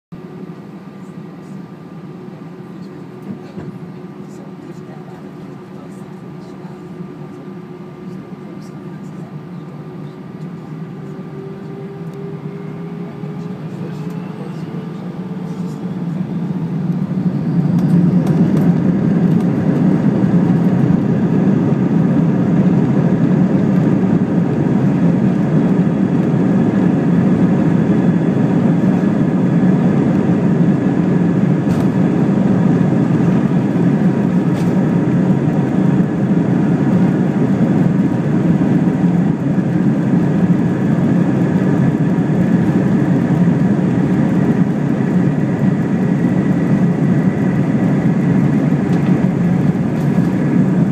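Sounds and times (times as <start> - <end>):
jet engines roaring: 9.3 - 50.9.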